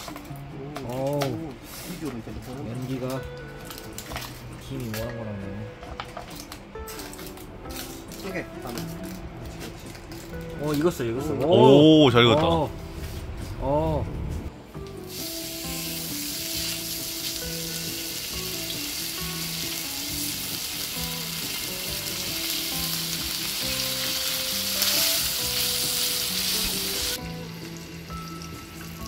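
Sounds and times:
meat sizzling on griddle: 0:15.0 - 0:29.0.

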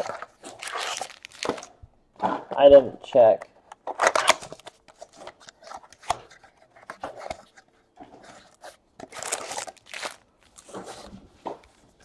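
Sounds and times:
foil packs crinkling: 0:00.0 - 0:01.8, 0:09.1 - 0:11.0.

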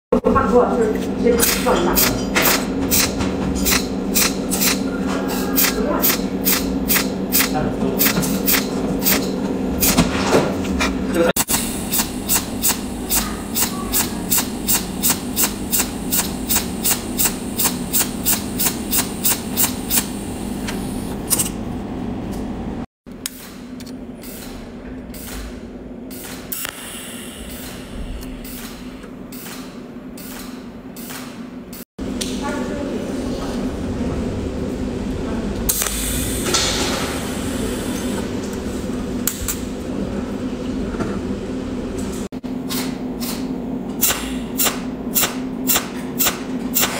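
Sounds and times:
steady low hum: 0:00.1 - 0:46.9.

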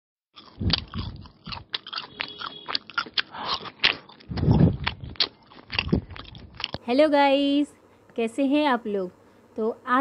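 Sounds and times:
crunchy biting and chewing: 0:00.4 - 0:06.8.

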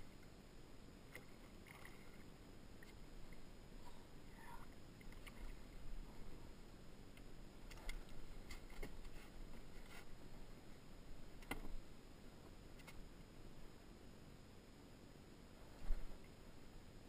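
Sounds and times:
faint clicks and taps in plastic boat: 0:04.5 - 0:05.6, 0:07.1 - 0:10.2, 0:11.4 - 0:11.8, 0:12.4 - 0:13.0.

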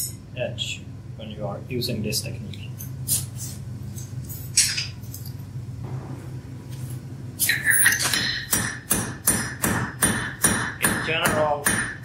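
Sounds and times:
hammer striking metal on anvil: 0:07.9 - 0:12.0.

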